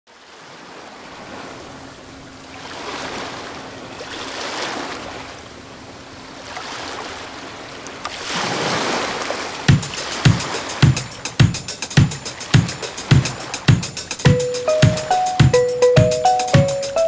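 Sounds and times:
small sea waves washing in: 0.2s - 11.4s, 12.2s - 13.7s.

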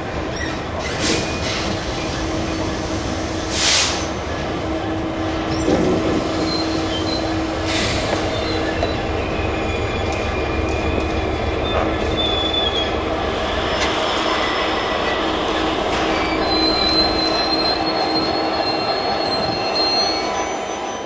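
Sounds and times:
diesel locomotive engine rumbling: 0.0s - 21.0s
wheel squeal: 5.5s - 21.0s.

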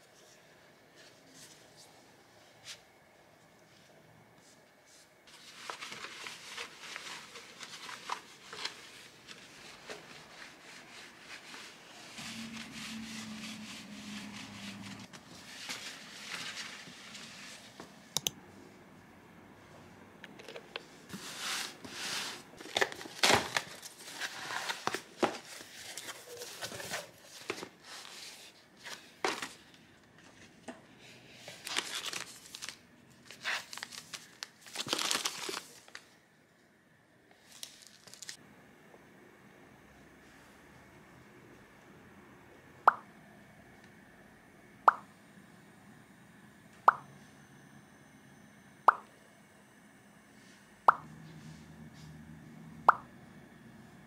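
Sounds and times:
packaging crinkling and tearing: 22.6s - 27.6s, 31.5s - 36.1s, 37.4s - 38.4s.

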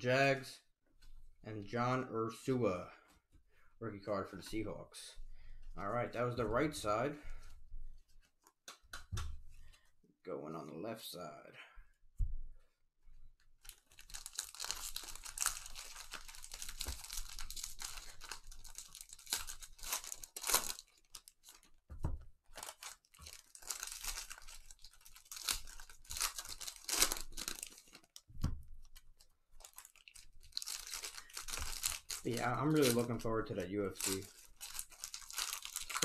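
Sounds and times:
foil wrappers tearing and crinkling: 13.6s - 21.8s, 22.5s - 36.0s.

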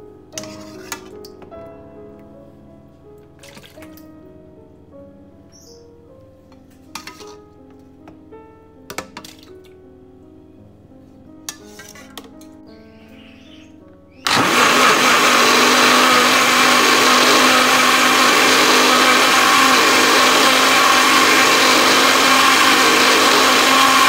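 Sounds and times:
soft background music: 0.0s - 14.2s
blender running: 14.2s - 24.0s.

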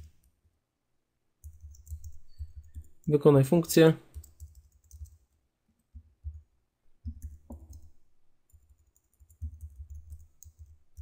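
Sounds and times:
keyboard typing clicks: 1.4s - 3.1s, 4.1s - 5.2s, 7.0s - 11.0s.

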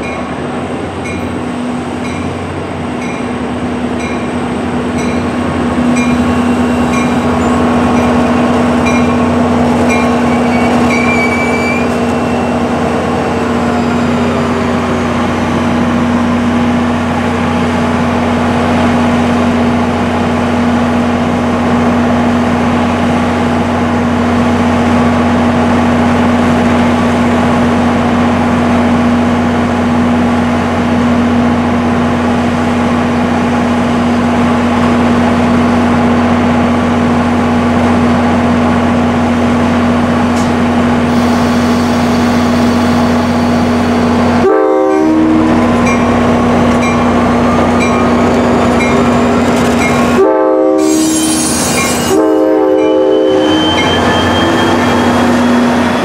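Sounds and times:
high brake squeals: 9.9s - 12.7s, 50.8s - 56.0s.

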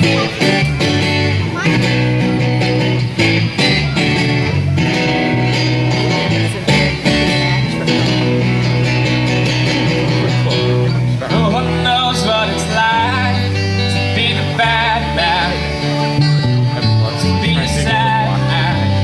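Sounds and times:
bass guitar: 0.0s - 19.0s
strummed acoustic guitar: 0.0s - 19.0s
person singing: 9.8s - 16.1s, 16.9s - 19.0s.

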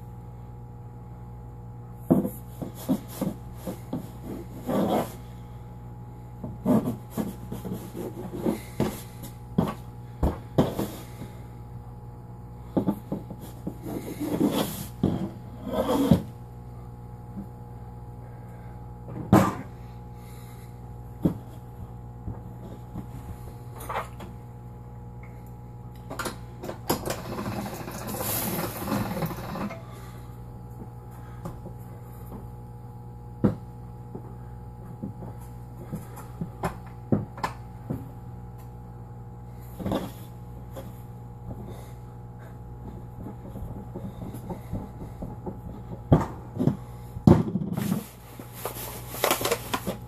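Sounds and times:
knife scraping on a tabletop: 15.6s - 16.3s.

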